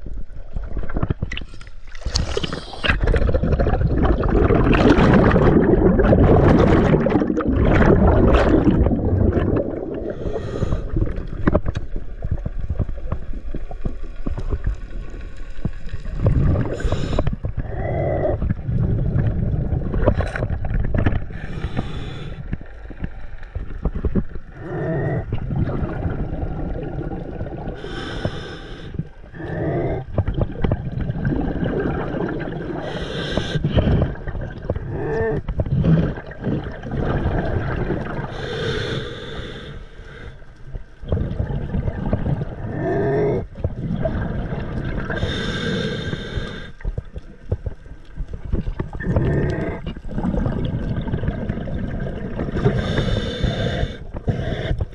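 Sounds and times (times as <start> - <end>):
bubbly hiss: 41.0 - 46.8, 48.6 - 54.9.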